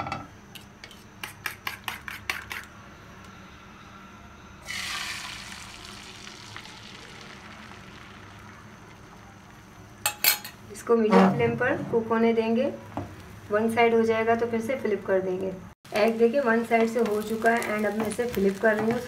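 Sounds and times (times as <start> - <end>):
egg mixture sizzling in oil: 4.6 - 10.0, 15.9 - 19.0.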